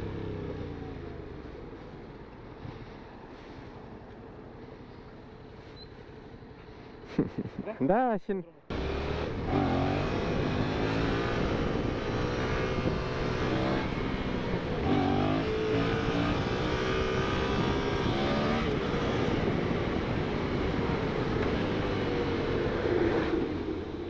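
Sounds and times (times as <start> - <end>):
motorcycle engine running: 8.7 - 22.7.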